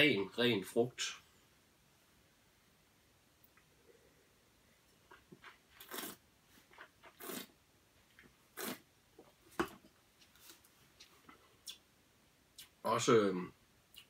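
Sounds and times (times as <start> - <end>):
slurping wine: 5.5 - 6.2, 7.0 - 7.5, 8.6 - 8.8.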